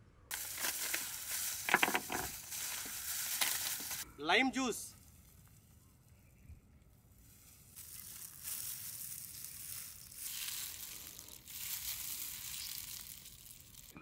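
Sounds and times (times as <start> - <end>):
limes squeezed by hand: 7.3 - 14.0.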